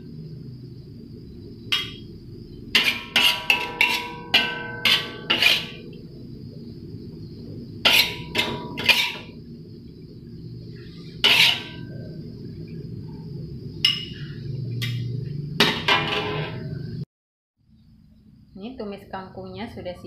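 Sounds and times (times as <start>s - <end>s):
steady low hum: 0.0s - 20.0s
spatula scraping metal wok: 2.7s - 5.8s, 7.8s - 9.4s, 10.7s - 12.1s, 15.8s - 16.8s.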